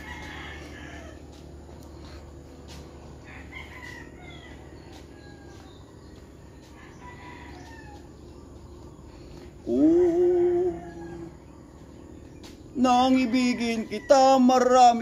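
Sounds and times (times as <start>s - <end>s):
rooster crowing: 0.0s - 1.5s, 3.1s - 8.4s, 9.6s - 11.7s, 13.1s - 15.0s
birds calling: 0.0s - 15.0s.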